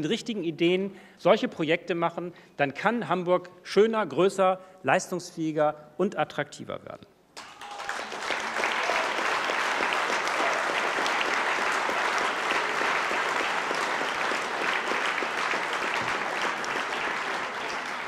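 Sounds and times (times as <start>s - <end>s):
audience applause: 7.4s - 18.0s.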